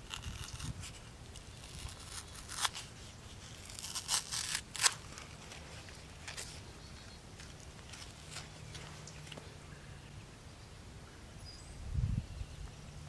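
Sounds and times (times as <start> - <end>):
cardboard peeling and tearing: 0.0 - 6.6.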